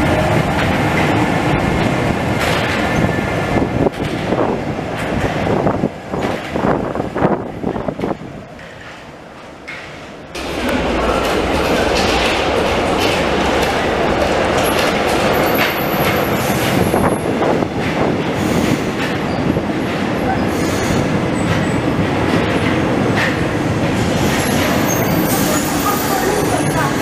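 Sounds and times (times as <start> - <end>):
train wheels rumbling on rails: 0.0 - 27.0
high-pitched wheel squeal: 24.4 - 26.9.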